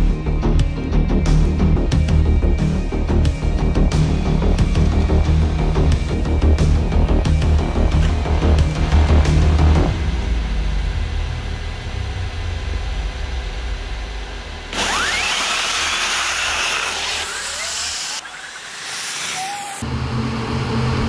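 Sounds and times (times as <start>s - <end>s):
low rumble: 1.7s - 14.8s, 19.8s - 21.0s
electric race car accelerating whine: 3.9s - 21.0s.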